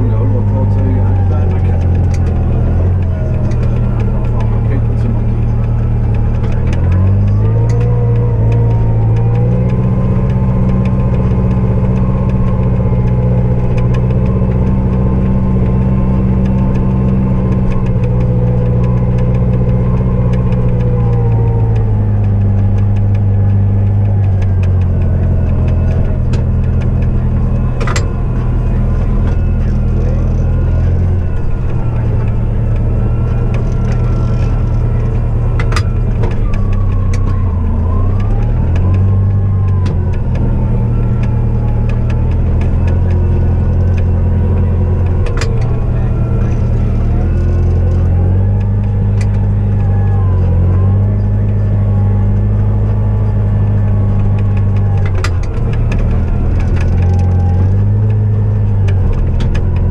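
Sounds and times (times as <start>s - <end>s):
diesel engine revving: 0.0s - 59.9s.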